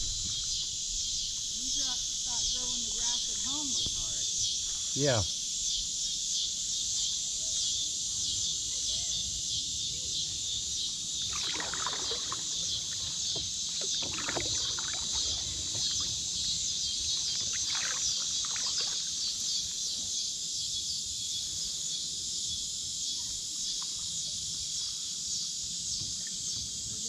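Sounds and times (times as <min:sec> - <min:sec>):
high buzz of insects: 0:00.0 - 0:27.0
paddle splashing in water: 0:11.2 - 0:19.5.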